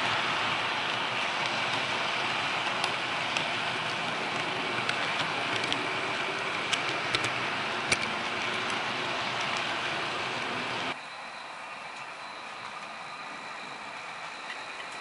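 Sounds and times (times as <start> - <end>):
model train wheels rattling on rails: 0.0 - 11.0.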